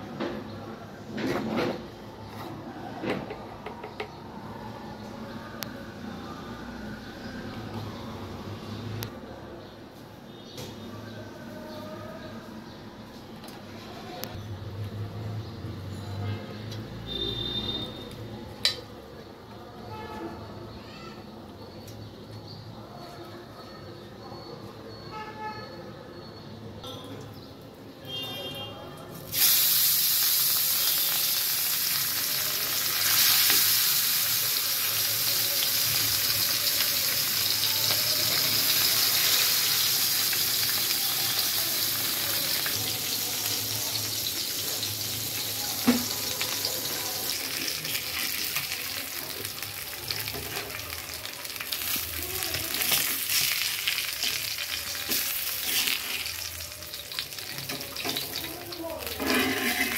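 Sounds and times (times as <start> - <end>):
fish sizzling in hot oil: 29.2 - 59.9.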